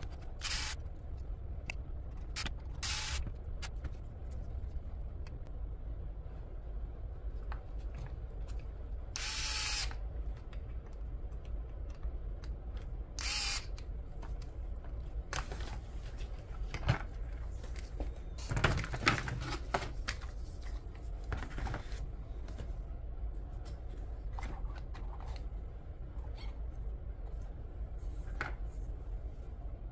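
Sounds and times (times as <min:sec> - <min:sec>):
electric screwdriver driving screws: 0:00.4 - 0:00.8, 0:02.4 - 0:03.2, 0:09.2 - 0:10.0, 0:13.2 - 0:13.7.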